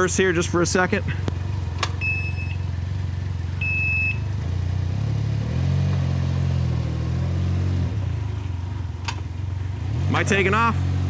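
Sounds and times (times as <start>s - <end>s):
engine running low: 0.0s - 11.0s
short high beep: 2.0s - 2.6s, 3.6s - 4.3s.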